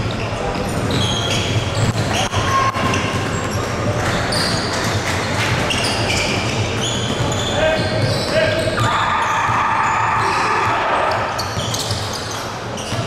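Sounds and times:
sneaker squeaks on court: 0.1s - 3.7s, 4.3s - 4.8s, 5.6s - 8.9s, 11.0s - 13.0s
ball bouncing: 1.4s - 8.2s.

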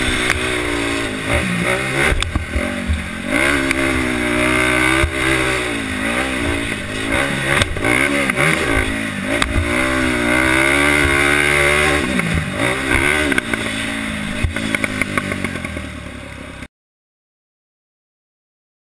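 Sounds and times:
quad engine revving: 0.0s - 16.7s.

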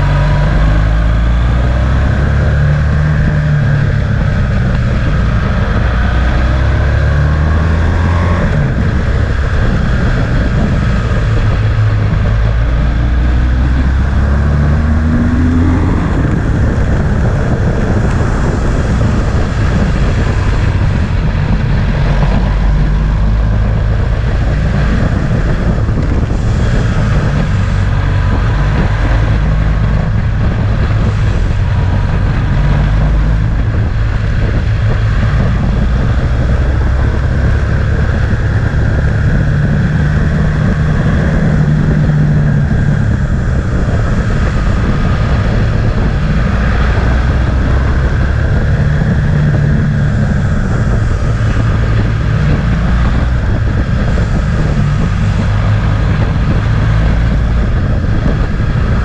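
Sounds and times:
motorcycle engine running: 0.0s - 59.0s
wind noise on microphone: 0.0s - 59.0s.

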